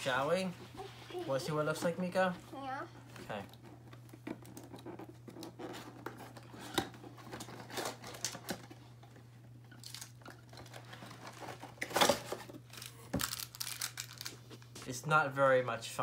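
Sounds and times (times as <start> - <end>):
cardboard packaging rustling: 9.8 - 14.8.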